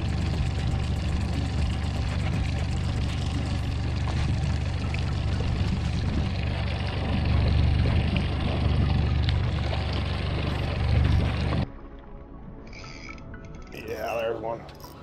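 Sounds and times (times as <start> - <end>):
boat motor running: 0.0 - 11.7
water rushing past hull: 0.0 - 12.5.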